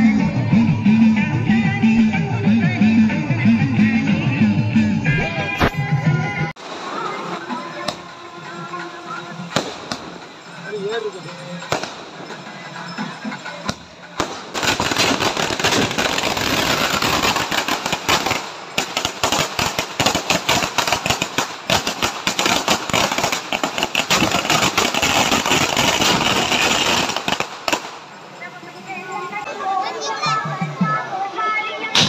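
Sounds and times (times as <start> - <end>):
firecrackers cracking: 6.6 - 8.1, 9.2 - 10.6, 11.6 - 13.0, 13.6 - 28.3.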